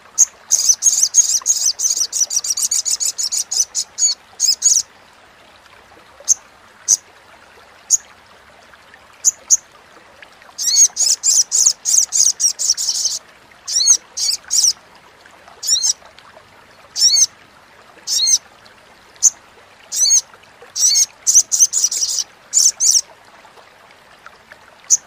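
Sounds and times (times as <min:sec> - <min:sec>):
bird chirping and chattering: 0:00.2 - 0:04.8, 0:20.8 - 0:23.0.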